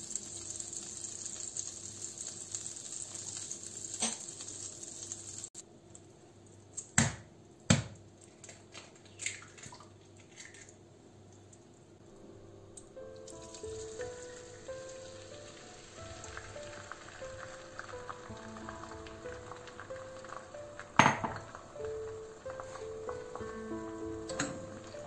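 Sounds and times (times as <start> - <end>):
butter sizzling in frying pan: 0.0 - 5.6, 12.4 - 25.0.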